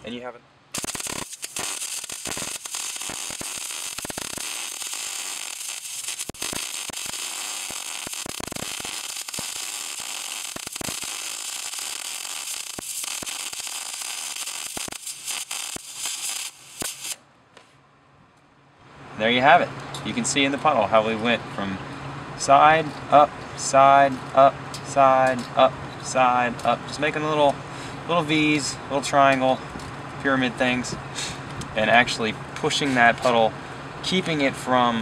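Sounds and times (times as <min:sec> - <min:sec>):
welding arc crackling hiss: 0:00.7 - 0:17.2.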